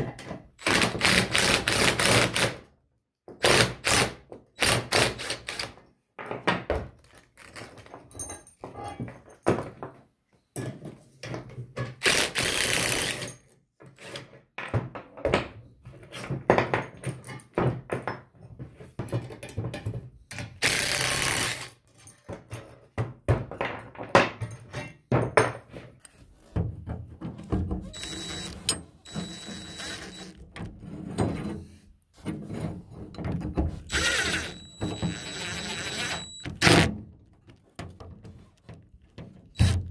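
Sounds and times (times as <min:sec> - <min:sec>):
metal parts clinking on wooden bench: 0:07.7 - 0:09.5
cordless driver running bolts: 0:27.8 - 0:30.7, 0:33.9 - 0:36.9, 0:39.6 - 0:39.9.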